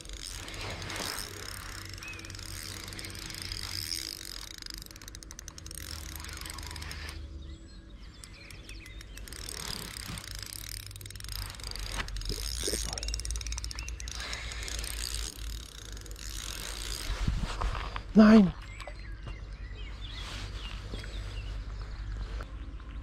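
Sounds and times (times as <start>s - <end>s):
fishing reel ticking: 0.0s - 17.3s.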